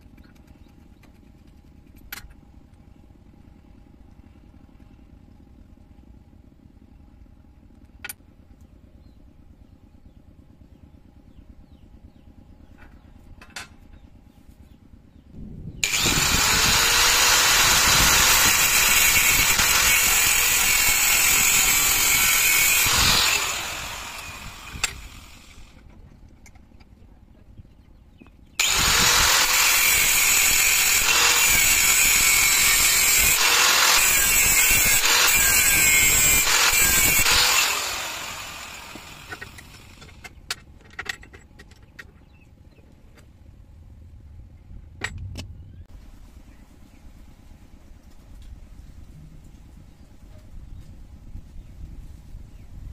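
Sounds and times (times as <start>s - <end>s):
angle grinder cutting steel: 15.8s - 25.8s, 28.6s - 40.2s.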